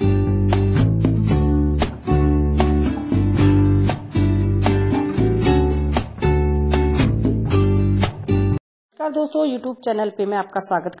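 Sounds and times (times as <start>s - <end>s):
music with a steady beat: 0.0s - 8.6s.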